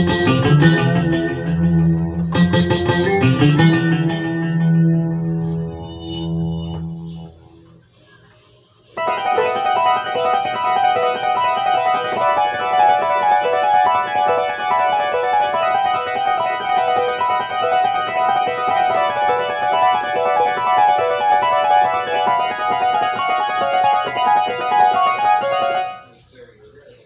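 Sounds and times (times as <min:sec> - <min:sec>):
fast electronic keyboard notes: 0:00.0 - 0:07.8, 0:09.0 - 0:26.1.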